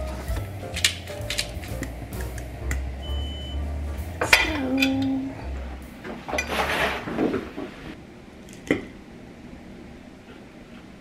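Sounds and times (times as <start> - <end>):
low drawn-out tone: 0.0 - 6.5
dishes and cutlery clinking: 4.2 - 5.2, 6.1 - 7.9.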